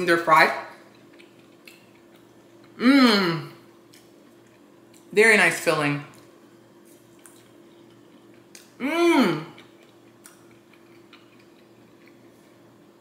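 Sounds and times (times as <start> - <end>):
man chewing food: 0.7 - 2.8, 3.5 - 5.1, 6.1 - 13.0
man humming mmm: 2.8 - 3.6, 8.8 - 9.6.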